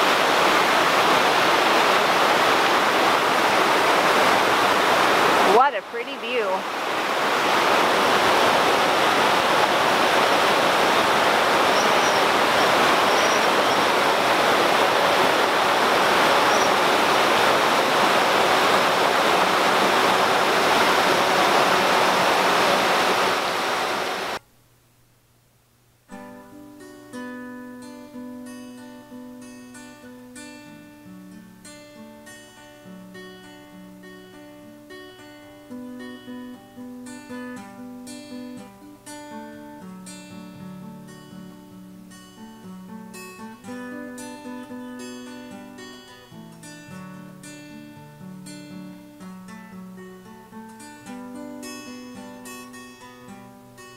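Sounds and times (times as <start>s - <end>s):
loud rushing noise: 6.6s - 24.4s
plucked acoustic guitar music: 26.1s - 53.9s.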